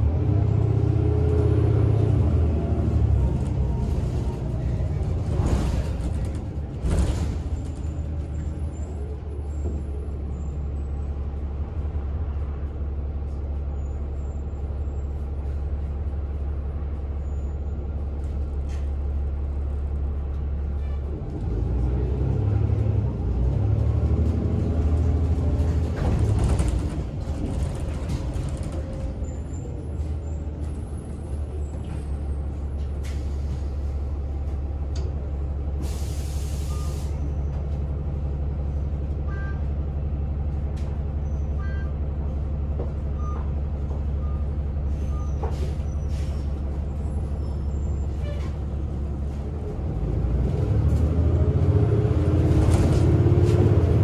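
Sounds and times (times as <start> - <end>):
bus engine idling and accelerating: 0.0 - 54.0
air brake hiss: 35.8 - 37.3.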